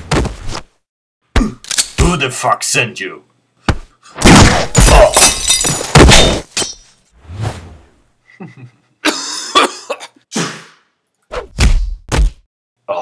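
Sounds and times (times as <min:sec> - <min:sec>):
glass shattering: 0:04.7 - 0:07.1.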